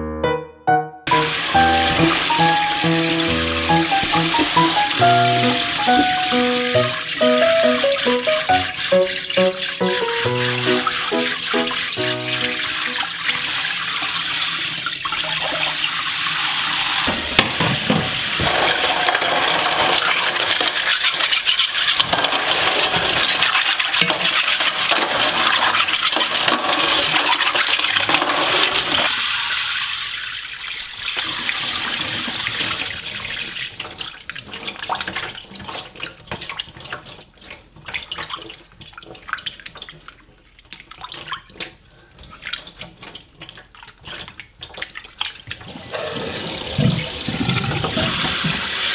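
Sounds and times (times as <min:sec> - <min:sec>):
hands scrubbing clams: 0:01.1 - 0:13.1, 0:18.2 - 0:29.0
tap water running into steel bowl: 0:01.1 - 0:38.6, 0:43.1 - 0:48.9
water splashing in bowl: 0:01.1 - 0:48.9.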